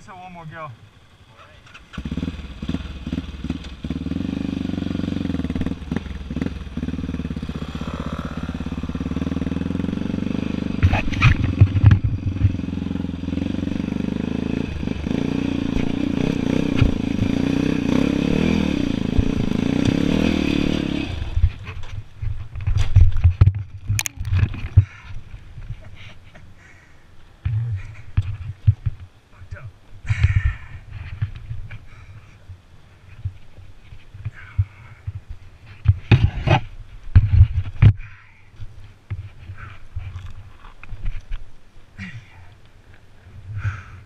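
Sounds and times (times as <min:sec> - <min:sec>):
dirt bike engine under throttle: 0:01.4 - 0:25.0.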